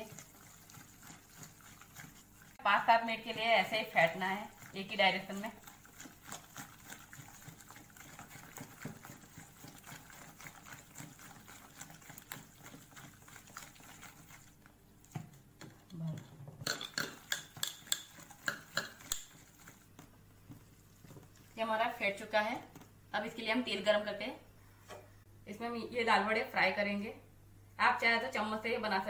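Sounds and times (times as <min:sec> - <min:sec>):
whisk clinking against metal bowl: 0:00.0 - 0:02.8, 0:03.6 - 0:14.5, 0:16.6 - 0:19.8
batter squishing strokes: 0:00.0 - 0:16.3, 0:17.0 - 0:23.0.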